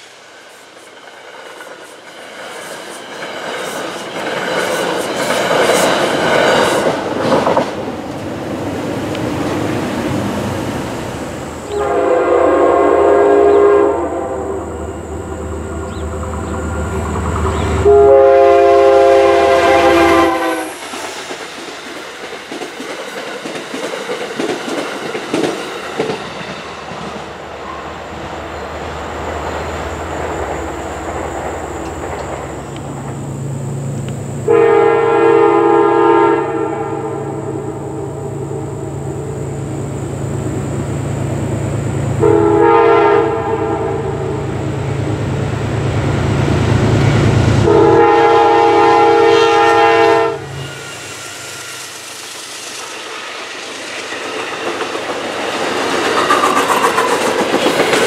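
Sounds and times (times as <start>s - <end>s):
train wheels clattering on rails: 0.0s - 10.2s, 15.8s - 18.1s, 19.2s - 27.8s, 29.1s - 33.3s, 50.5s - 58.0s
train horn blasts: 11.7s - 20.8s, 34.4s - 39.4s, 42.2s - 44.6s, 47.0s - 51.3s.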